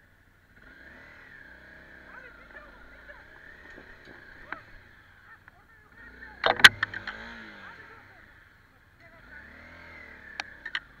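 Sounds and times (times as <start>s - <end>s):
motorcycle engine running: 0.0s - 11.0s
sharp knocks and clatter: 3.4s - 4.7s, 6.4s - 7.3s.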